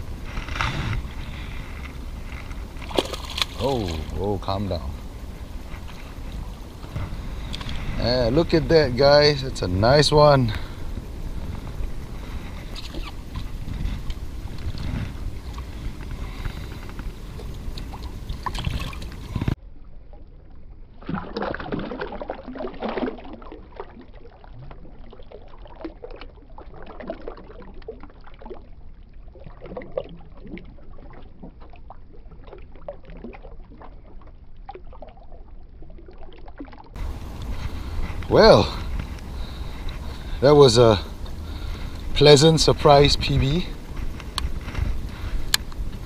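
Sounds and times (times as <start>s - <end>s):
wind rumbling on microphone: 0.0s - 19.6s, 37.0s - 46.0s
water splashing and lapping: 0.0s - 46.0s
water drips: 1.8s - 19.5s.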